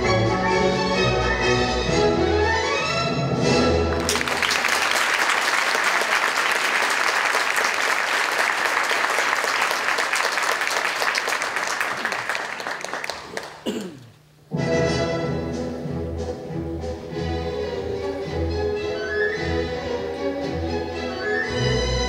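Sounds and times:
orchestra playing: 0.0 - 4.2, 14.5 - 22.0
audience applauding: 3.9 - 14.1.

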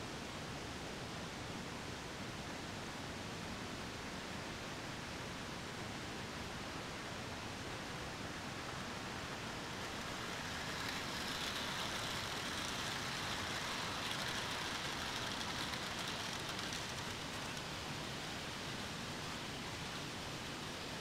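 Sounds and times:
background hiss: 0.0 - 21.0
model train whirring: 7.9 - 20.9.

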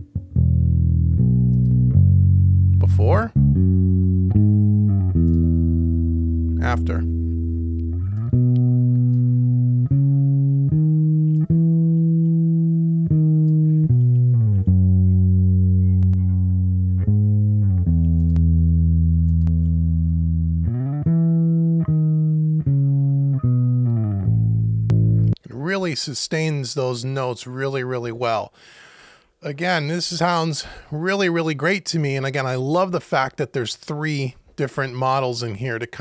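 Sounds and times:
bass guitar held notes: 0.0 - 25.4.

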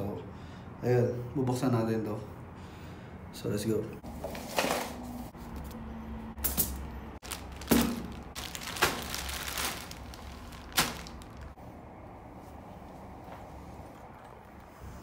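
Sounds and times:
plastic mailer bag crinkling: 7.2 - 11.6.

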